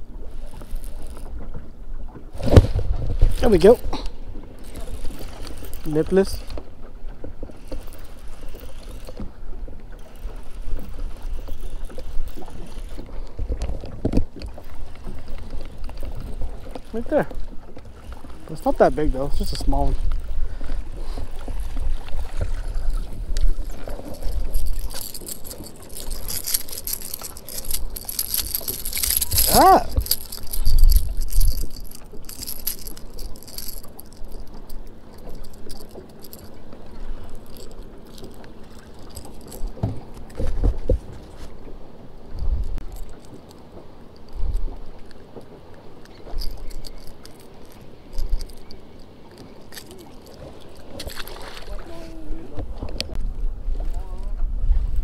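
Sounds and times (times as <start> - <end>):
water lapping against boat hull: 0.0 - 55.0
fish thrashing: 0.1 - 1.6, 2.2 - 41.5, 42.6 - 53.2
lure rattle and hooks clicking: 0.3 - 1.5, 3.2 - 20.1, 21.2 - 40.6, 42.6 - 52.0
boat bump: 11.8 - 41.8
wind buffeting microphone: 47.7 - 55.0.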